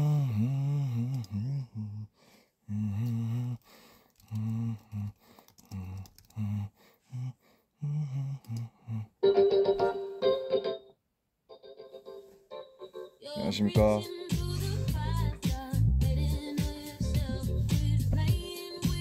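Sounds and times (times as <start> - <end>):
low voice humming: 0.0 - 2.1, 5.7 - 9.2
music with keyboard chords: 9.2 - 10.9, 11.6 - 19.0.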